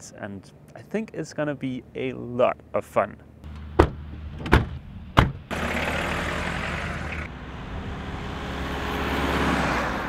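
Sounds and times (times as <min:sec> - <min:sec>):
sharp knocks: 0:03.8 - 0:05.5.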